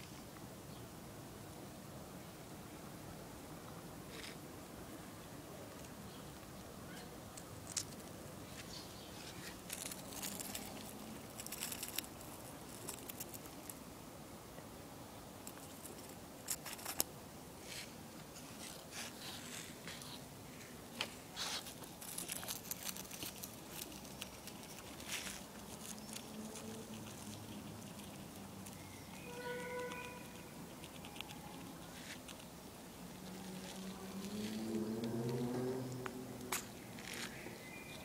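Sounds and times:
rat chewing plant fibres: 7.5s - 13.8s, 15.4s - 20.2s, 21.1s - 37.4s.

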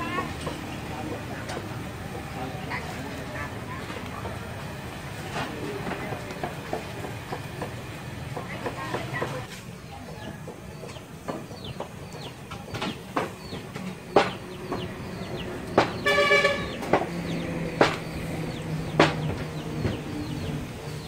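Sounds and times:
sharp knocks: 12.6s - 14.9s, 15.7s - 20.0s.

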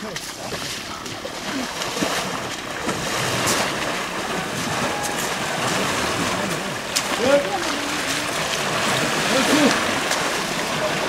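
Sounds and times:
river water sloshing and splashing: 0.0s - 11.0s.

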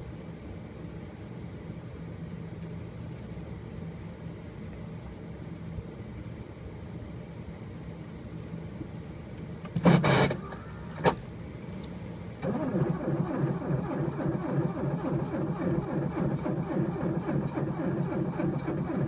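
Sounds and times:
low steady hum: 0.0s - 19.0s
starter cranking engine: 12.4s - 19.0s.

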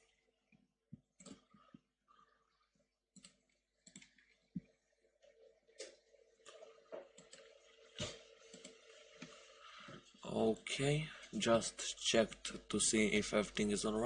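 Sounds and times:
computer mouse clicks: 3.2s - 4.3s.

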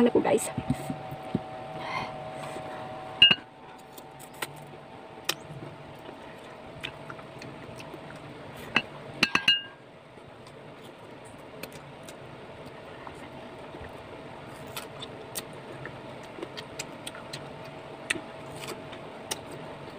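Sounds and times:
ceramic bowl clinking: 3.2s - 3.5s, 8.8s - 9.8s.

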